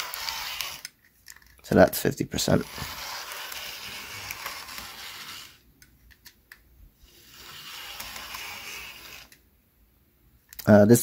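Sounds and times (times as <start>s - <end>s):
model locomotive motor whirring: 0.0s - 0.9s, 2.5s - 5.6s, 7.1s - 9.4s.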